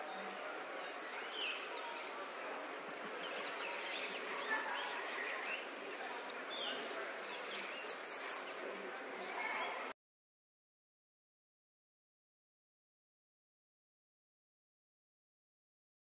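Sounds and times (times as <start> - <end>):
small birds chirping: 0.0 - 8.6.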